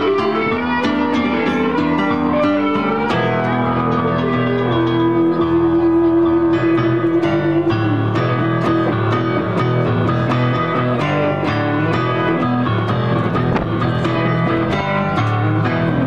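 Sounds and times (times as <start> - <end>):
rock band playing: 0.0 - 16.0.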